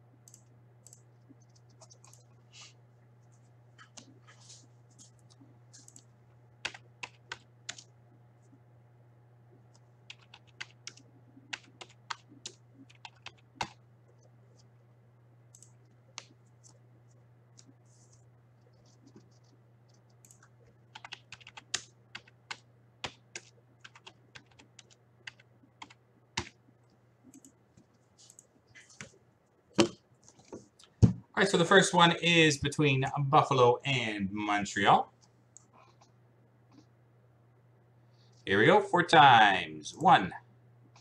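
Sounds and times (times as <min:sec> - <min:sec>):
low steady hum: 0:00.0 - 0:41.0
typing on keyboard: 0:00.3 - 0:02.2, 0:05.8 - 0:07.9, 0:10.1 - 0:13.8, 0:18.7 - 0:26.6.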